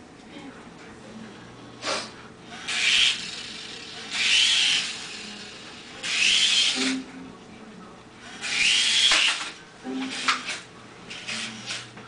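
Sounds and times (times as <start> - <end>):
toy helicopter motor whirring: 2.5 - 7.0, 8.3 - 11.8.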